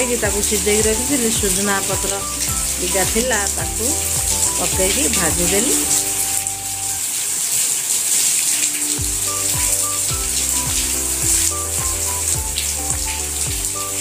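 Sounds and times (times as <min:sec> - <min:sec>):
background music with bass beat: 0:00.0 - 0:07.0, 0:09.0 - 0:14.0.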